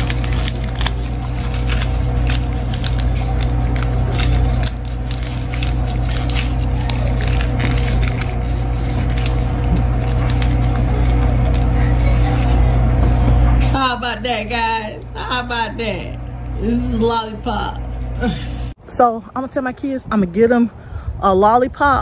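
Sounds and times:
paper and tape crinkling: 0.0 - 12.8
steady low hum: 0.0 - 22.0.

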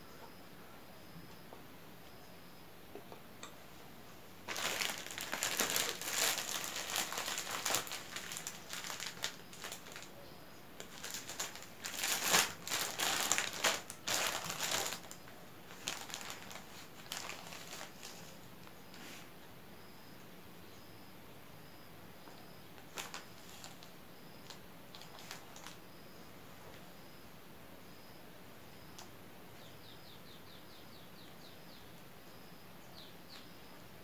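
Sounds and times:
plastic bag crinkling: 4.5 - 10.1, 10.8 - 18.4, 22.8 - 25.8.

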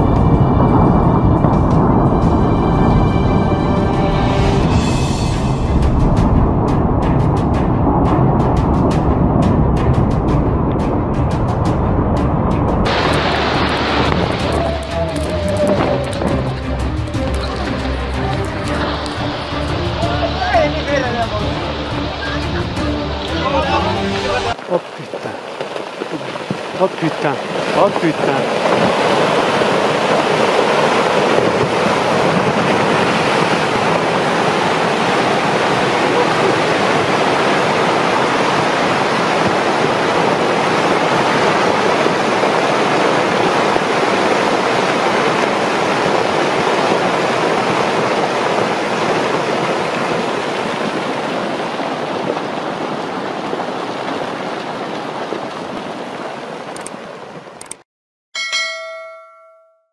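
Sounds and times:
rockfall rushing: 0.0 - 57.4
short ringing chime: 58.4 - 59.9.

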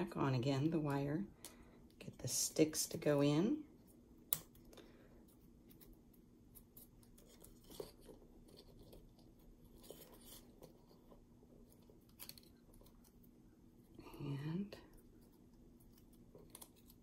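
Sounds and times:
faint steady hum: 0.0 - 17.0
small clicks and rustles: 4.3 - 13.3.

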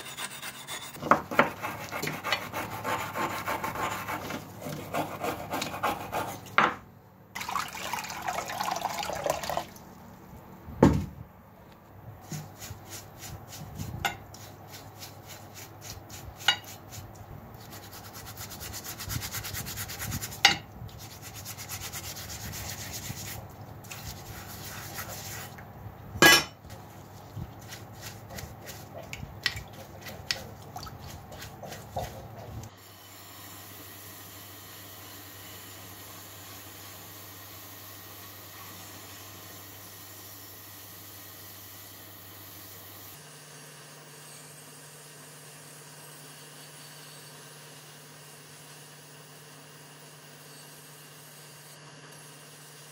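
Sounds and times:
brush scrubbing wooden handle: 0.0 - 6.4, 12.2 - 20.4, 21.0 - 25.6, 26.7 - 32.7
brushing and sloshing water: 12.2 - 25.6, 26.7 - 32.7.

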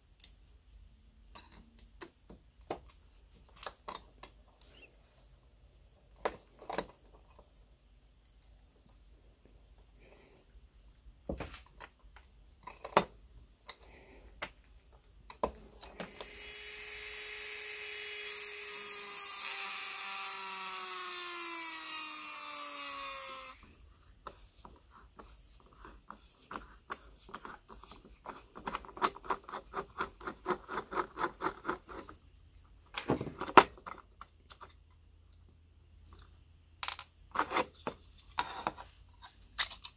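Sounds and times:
rotary tool grinding metal: 16.2 - 23.6.

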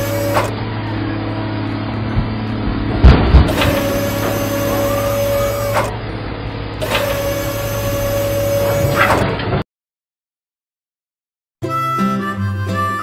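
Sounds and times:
toy truck motor whirring: 0.0 - 0.6, 3.5 - 6.0, 6.8 - 9.1
steady hum: 0.0 - 9.0.

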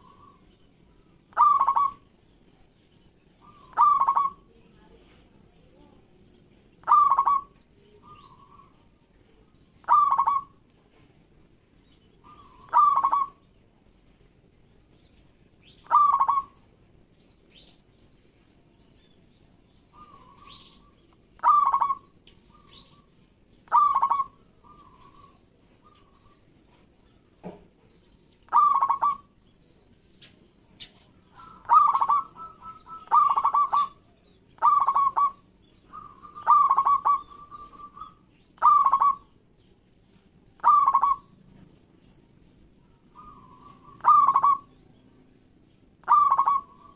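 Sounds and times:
dove cooing: 1.3 - 2.1, 3.4 - 4.6, 6.8 - 8.9, 9.8 - 10.6, 12.2 - 13.4, 15.8 - 16.6, 19.9 - 23.1, 23.7 - 26.4, 28.5 - 29.3, 30.8 - 39.3, 40.6 - 41.3, 43.1 - 44.8, 46.0 - 46.9.

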